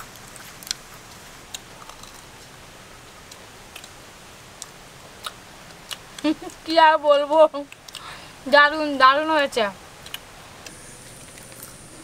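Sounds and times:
crunchy food chewing: 0.0 - 2.5, 10.0 - 10.2
faint steady hiss: 0.0 - 12.0.

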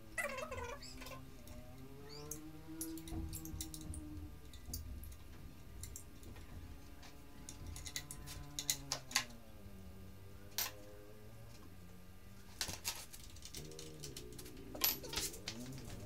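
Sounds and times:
hand tools clicking and tapping: 1.4 - 9.3, 12.6 - 16.0.

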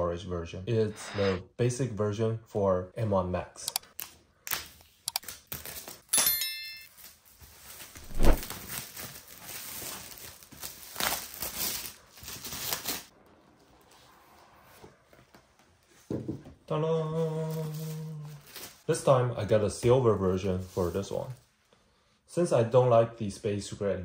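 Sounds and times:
packaging rustling and tearing: 7.0 - 13.1.

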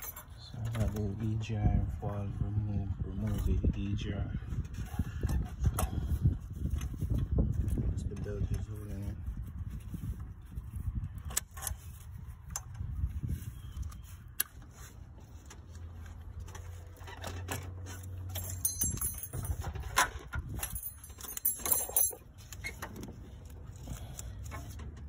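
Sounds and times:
metal tools clinking and rattling: 0.0 - 1.4, 15.3 - 25.0
bright metallic jingling: 18.2 - 22.4.

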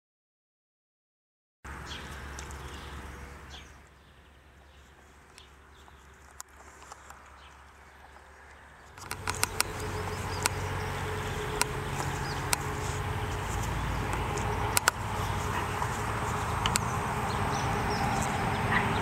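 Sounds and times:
sharp clicks: 8.9 - 18.4.

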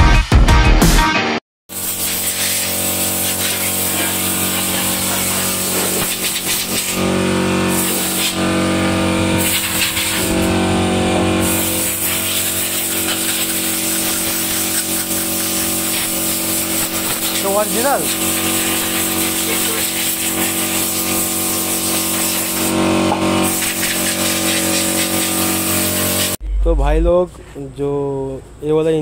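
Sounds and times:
hiss: 1.7 - 7.0, 7.7 - 8.4, 9.4 - 10.5, 11.4 - 22.7, 23.4 - 26.4
machine hum: 2.1 - 27.6.

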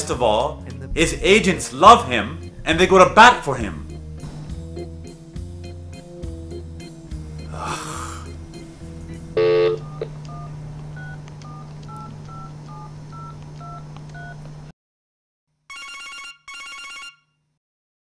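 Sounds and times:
electronic telephone ring: 9.4 - 10.1, 15.7 - 17.4
loud tone: 9.4 - 10.1
touch-tone keypad beeps: 9.4 - 14.4.

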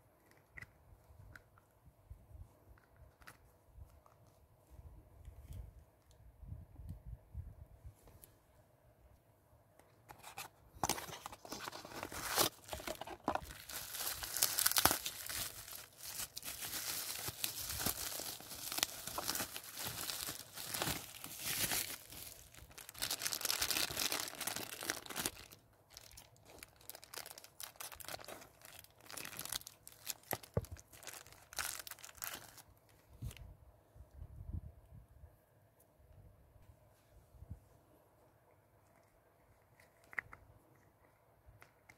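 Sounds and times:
plastic wrapping crinkling and tearing: 10.8 - 32.7.

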